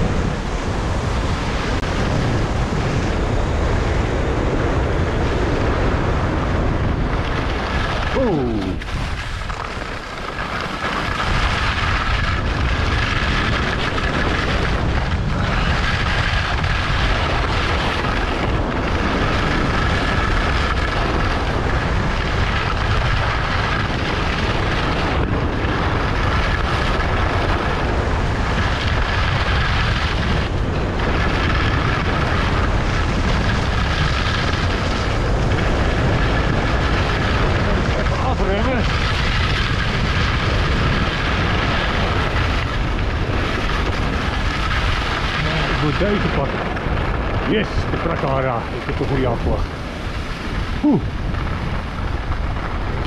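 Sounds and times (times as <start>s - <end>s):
skis scraping over hard snow: 0.0s - 53.0s
wind rushing on microphone: 0.0s - 53.0s.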